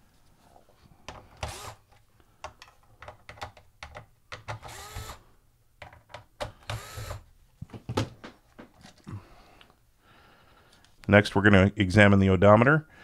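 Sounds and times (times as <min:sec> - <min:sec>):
electric screwdriver motor whirring: 0:01.4 - 0:01.8, 0:04.6 - 0:05.2, 0:06.6 - 0:07.2.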